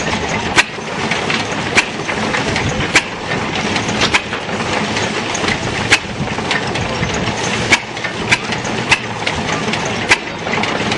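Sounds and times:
threshing machine clatter: 0.0 - 10.9
gas engine firing pops: 2.9 - 4.5.

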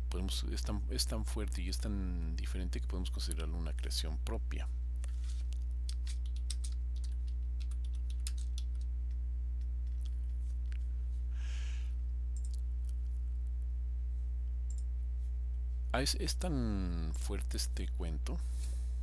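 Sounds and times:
steady low hum: 0.0 - 19.0
soft rustle: 5.1 - 5.6
keyboard and mouse clicks: 5.9 - 8.9, 12.4 - 12.6.

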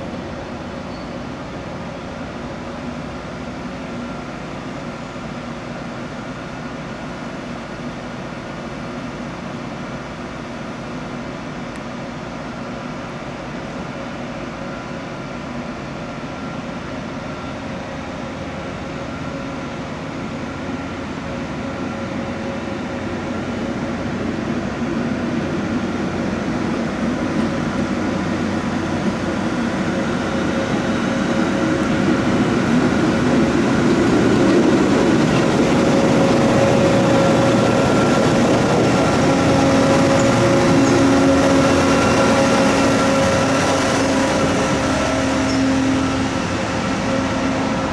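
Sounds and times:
train wheels rumbling on rails: 0.0 - 47.9
diesel engines running: 23.5 - 47.9.

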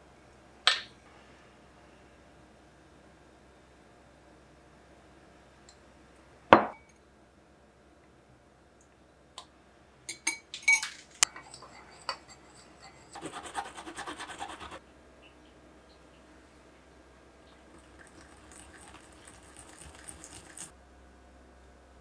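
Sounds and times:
spoon clinking against glass bowl: 10.1 - 13.0
spoon scraping while stirring sauce: 11.3 - 14.8.

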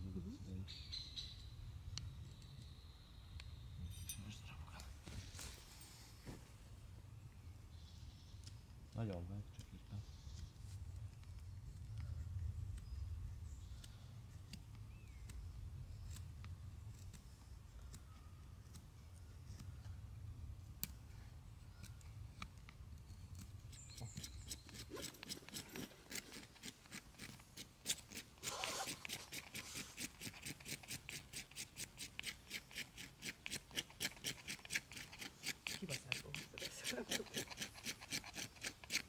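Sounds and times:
hand tool scraping: 21.7 - 39.0.

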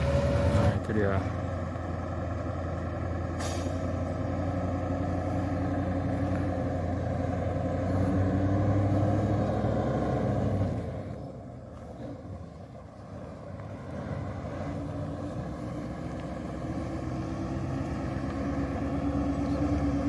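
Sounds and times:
diesel truck engine pulling uphill: 0.0 - 20.0.

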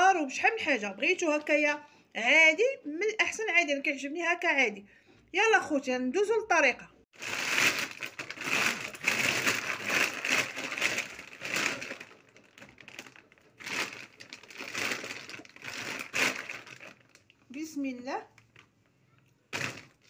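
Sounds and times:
plastic sack crinkling: 7.2 - 17.5, 19.5 - 20.0.

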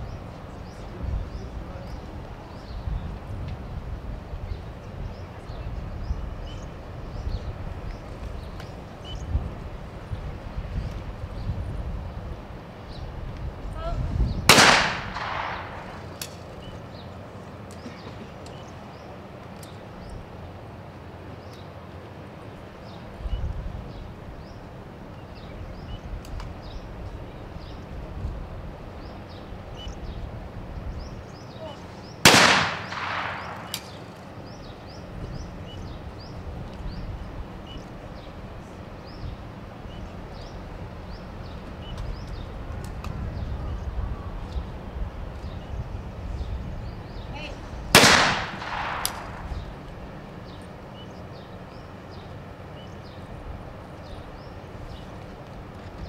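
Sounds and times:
shotgun shots with echo: 14.5 - 16.1, 32.2 - 34.0, 48.0 - 49.6.

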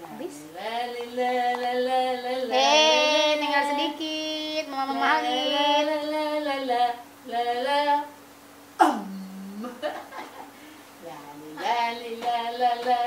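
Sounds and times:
woman singing long held notes: 0.5 - 8.2, 11.0 - 13.0.

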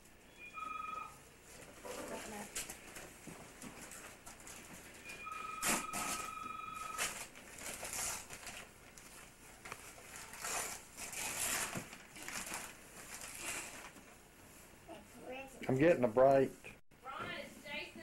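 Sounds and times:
telephone two-tone ring: 0.4 - 1.2, 5.1 - 7.1
wrapping paper rustling and tearing: 7.0 - 14.0.

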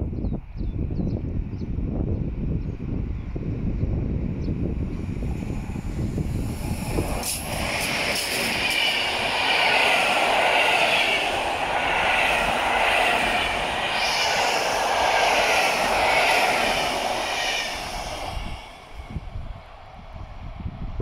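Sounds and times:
train wheels rushing on rails: 4.5 - 21.0.

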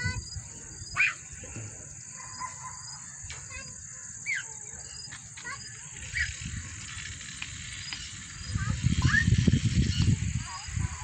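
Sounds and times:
wind rumble on microphone: 0.0 - 1.8, 5.8 - 11.0
birds calling: 0.0 - 11.0
insects droning: 0.0 - 11.0.

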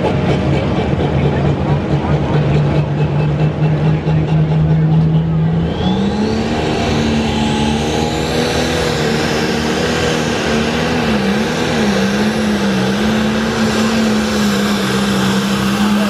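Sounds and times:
diesel engine running under load: 0.0 - 16.0.

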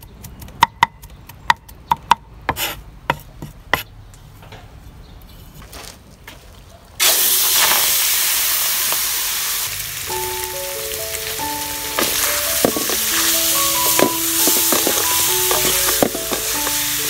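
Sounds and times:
pork frying in a wok: 7.0 - 17.0.

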